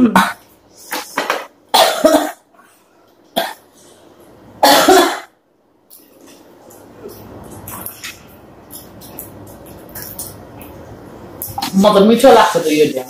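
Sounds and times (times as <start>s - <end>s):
woman coughing: 1.7s - 2.4s, 4.6s - 5.3s.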